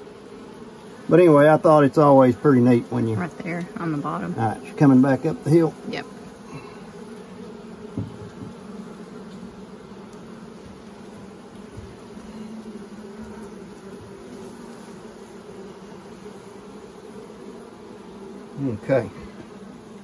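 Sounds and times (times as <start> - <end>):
bees buzzing: 0.0 - 20.0
light knock on wooden frame: 7.9 - 8.6.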